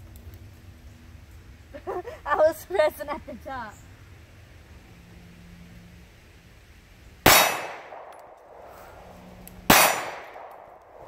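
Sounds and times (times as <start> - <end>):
pistol shots with ringing tail: 7.2 - 8.3, 9.7 - 10.8.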